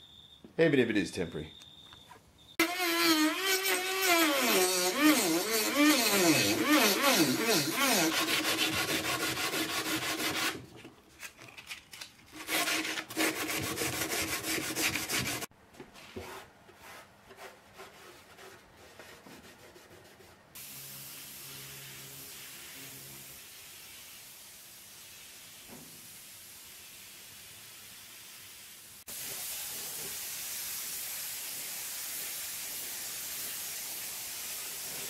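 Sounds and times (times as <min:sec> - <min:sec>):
grinding fibreglass: 0:02.6 - 0:10.6
spray gun hissing: 0:20.6 - 0:27.1, 0:27.7 - 0:35.0.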